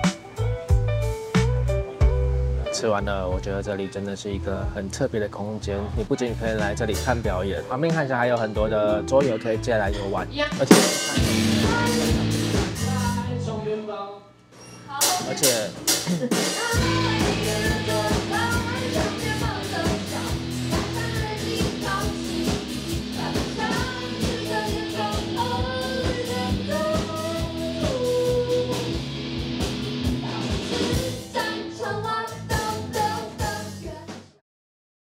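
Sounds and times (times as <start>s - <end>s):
song with guitar and drums: 0.0s - 2.6s, 8.6s - 13.4s, 15.0s - 34.0s.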